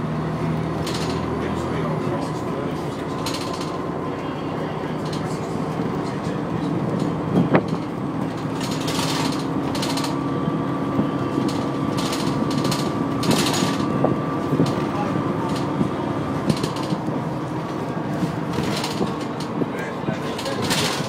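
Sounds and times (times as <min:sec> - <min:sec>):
bus engine drone with whine: 0:00.0 - 0:21.0
fittings rattling and ticking: 0:00.8 - 0:01.3, 0:03.1 - 0:03.9, 0:06.9 - 0:10.3, 0:11.4 - 0:17.1, 0:18.5 - 0:19.6.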